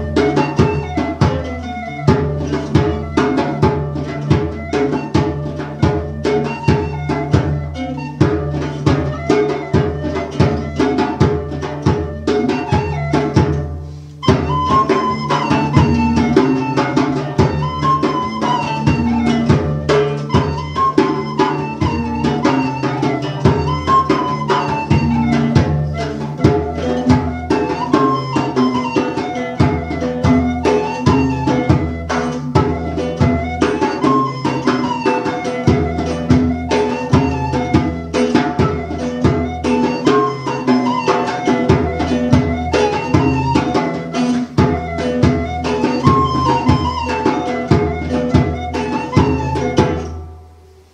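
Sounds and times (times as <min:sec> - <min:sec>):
flute melody: 0:00.0 - 0:50.9
hand drum strokes: 0:00.0 - 0:50.9
plucked lute: 0:00.0 - 0:50.9.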